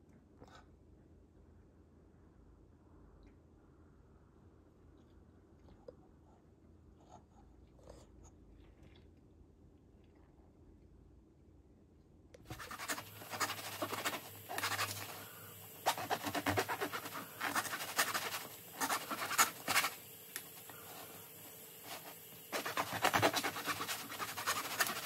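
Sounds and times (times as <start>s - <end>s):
knife sawing through crusty bread: 12.5s - 20.1s, 21.8s - 25.0s.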